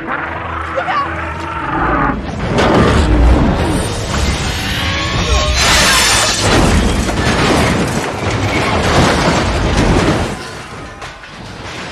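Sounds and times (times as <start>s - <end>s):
film music: 0.0s - 7.4s
crashing smashing debris: 2.4s - 11.9s.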